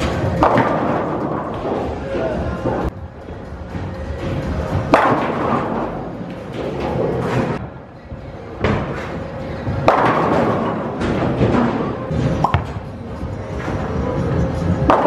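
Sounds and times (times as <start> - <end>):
bowling ball crashing into pins: 0.0 - 1.9, 4.9 - 7.6, 9.8 - 12.8.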